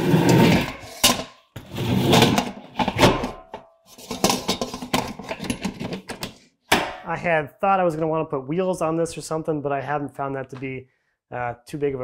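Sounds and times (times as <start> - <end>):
metal clanks scrapes and rattles: 0.0 - 6.4.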